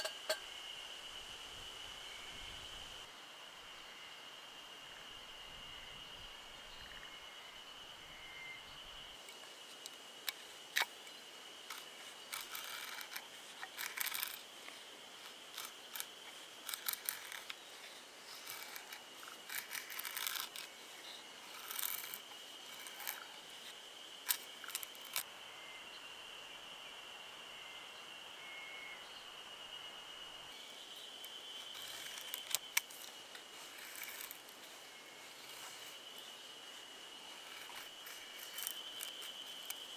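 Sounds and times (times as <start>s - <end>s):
high insect drone: 0.0s - 39.9s
knife scraping wood: 11.7s - 20.8s.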